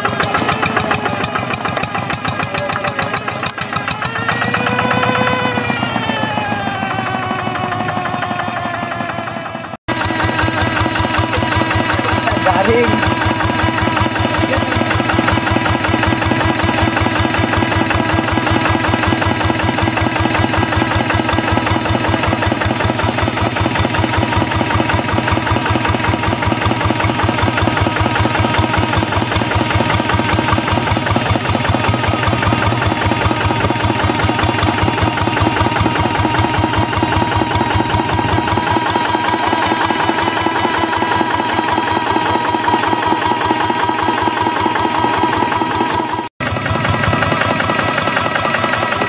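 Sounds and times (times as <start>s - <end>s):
diesel engine idling: 0.0s - 49.0s.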